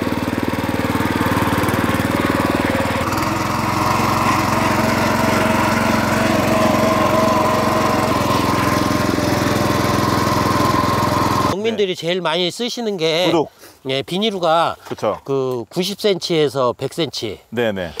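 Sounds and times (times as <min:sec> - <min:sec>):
cultivator engine running: 0:00.0 - 0:11.6.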